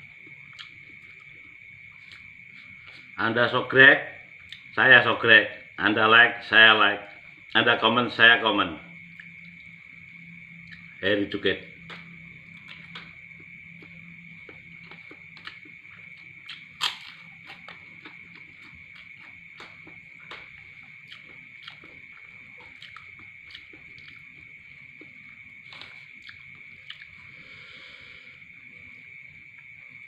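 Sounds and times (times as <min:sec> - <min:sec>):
cricket trill: 0:00.0 - 0:30.0
chewing: 0:00.2 - 0:03.1, 0:11.9 - 0:27.3.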